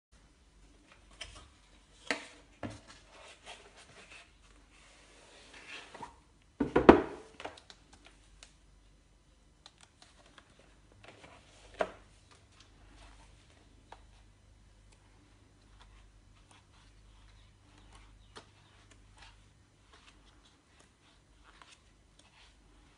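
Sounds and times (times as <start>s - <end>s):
cardboard flaps knocking: 6.6s - 7.3s.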